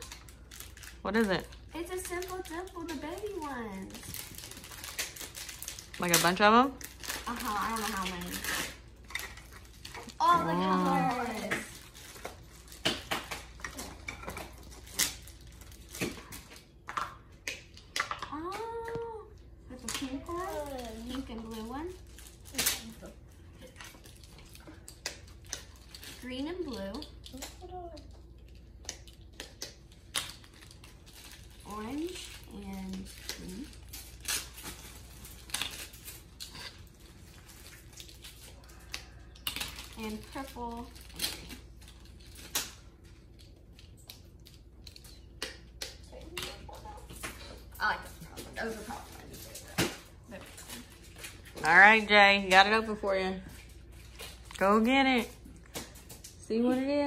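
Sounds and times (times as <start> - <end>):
plastic package crinkling: 0.0 - 16.8, 28.3 - 45.8.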